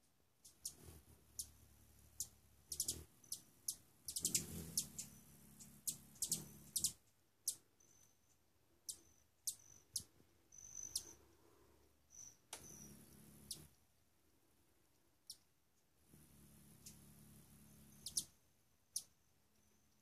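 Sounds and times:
hummingbird wings humming: 0.4 - 13.9, 15.2 - 20.0
hummingbird chip notes: 0.5 - 8.2, 12.2 - 13.7, 16.6 - 19.2.

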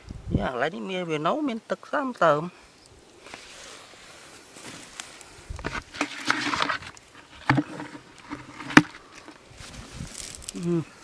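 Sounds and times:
hands scraping in dry soil: 3.1 - 10.7
knocks against plastic bucket: 5.6 - 9.4.

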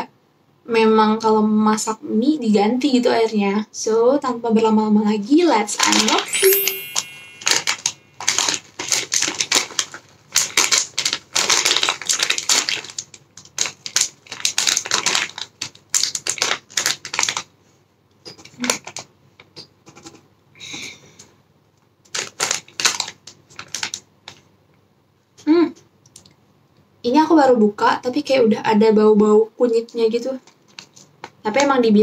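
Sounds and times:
plastic wrapper crinkling and tearing: 7.4 - 17.5, 22.0 - 24.4, 30.4 - 31.3.

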